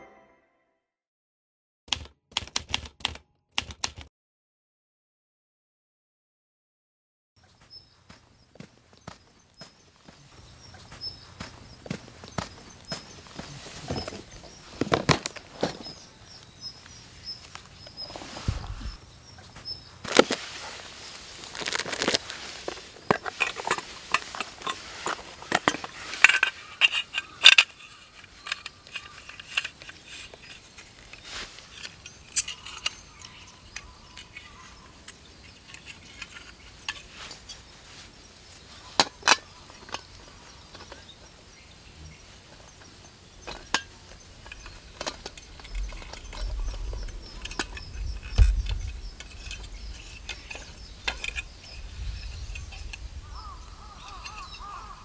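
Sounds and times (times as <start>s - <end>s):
clicks and knocks of case: 11.9s - 16.0s.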